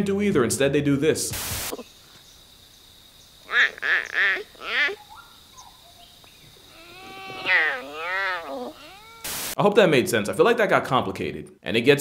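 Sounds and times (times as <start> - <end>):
leopard calling: 3.4 - 9.4.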